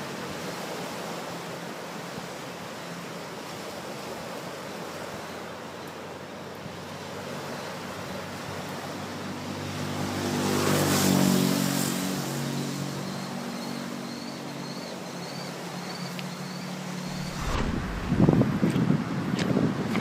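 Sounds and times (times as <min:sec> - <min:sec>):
wind: 0:00.0 - 0:20.0
surf: 0:17.1 - 0:18.7.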